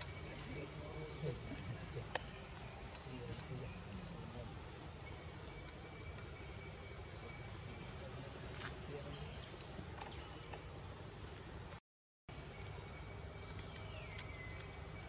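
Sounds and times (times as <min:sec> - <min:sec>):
high-pitched insect chorus: 0:00.0 - 0:15.0
faint clicks: 0:13.4 - 0:14.8.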